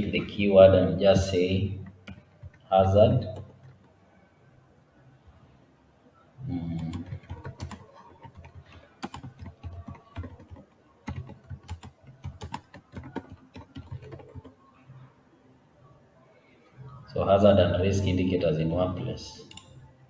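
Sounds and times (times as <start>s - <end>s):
typing on computer keyboard: 1.8s - 4.0s, 6.7s - 14.6s, 19.4s - 19.8s.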